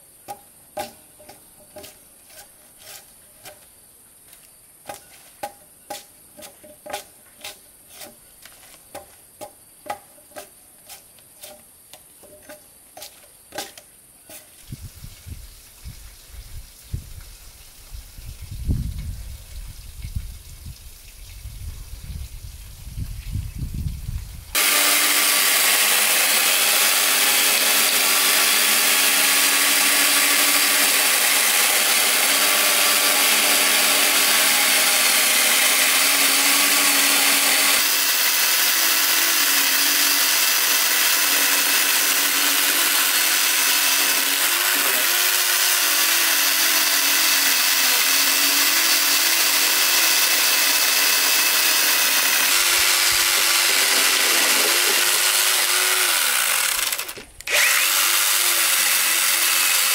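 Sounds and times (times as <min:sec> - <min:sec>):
electric chainsaw cutting log: 0:24.5 - 0:59.9.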